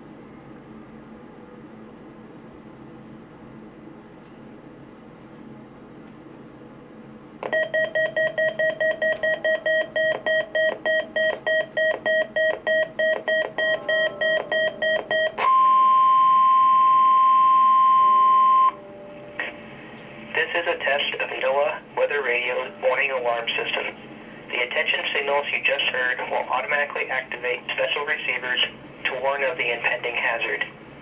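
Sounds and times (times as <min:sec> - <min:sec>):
rapid alarm beeps: 0:07.4 - 0:18.8
steady alert tone: 0:07.5 - 0:16.4.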